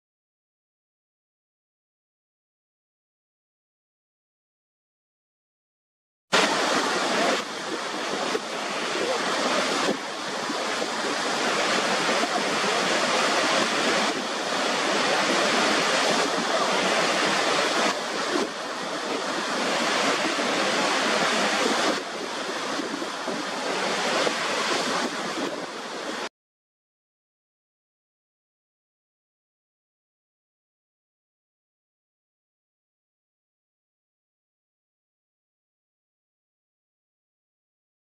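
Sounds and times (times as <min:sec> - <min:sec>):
waterfall rushing: 0:06.4 - 0:26.3.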